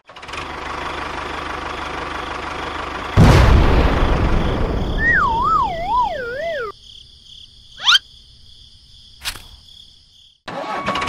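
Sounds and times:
engine noise: 0.0 - 6.7
warbling descending whistle: 4.9 - 6.7
faint high steady tone: 5.0 - 6.7
rising whistle whoosh: 5.0 - 6.7.

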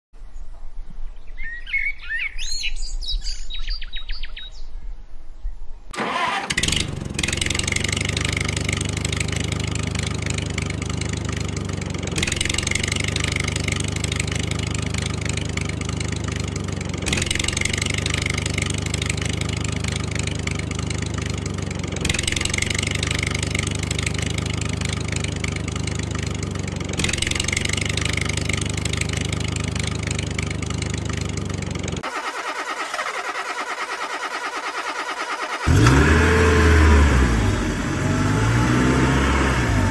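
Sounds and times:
birds chirping: 0.2 - 5.9
tractor engine running: 6.0 - 39.9.

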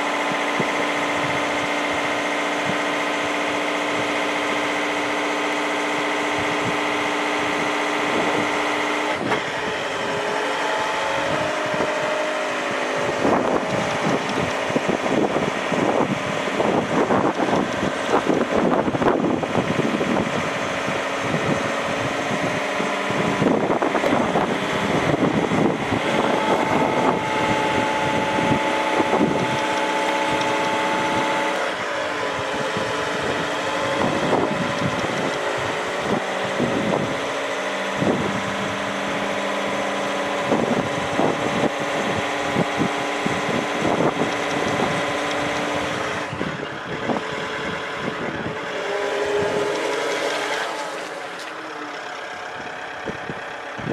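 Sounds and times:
forklift diesel engine running: 0.0 - 53.9.

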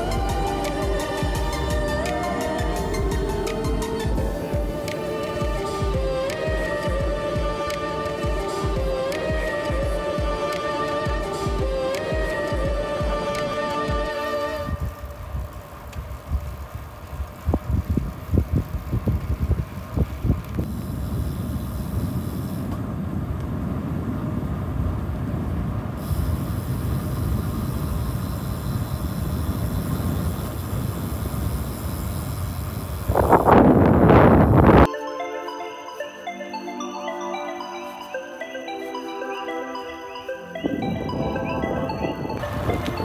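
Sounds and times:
road noise rush: 0.0 - 34.9, 40.6 - 43.0
wind buffeting the microphone: 14.6 - 34.9, 40.6 - 43.0.

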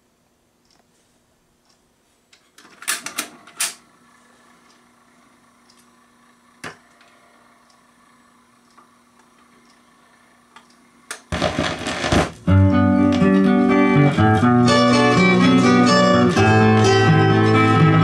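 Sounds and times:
faint playback hum: 0.0 - 18.0
turntable mechanism clicks and clunks: 2.4 - 3.8
record pop: 11.1 - 18.0.

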